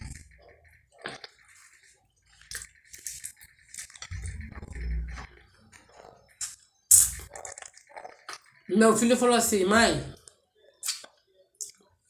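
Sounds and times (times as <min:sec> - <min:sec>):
wet chewing and sucking: 0:00.0 - 0:01.6, 0:02.3 - 0:08.6
lip smacks and clicks: 0:10.8 - 0:11.8.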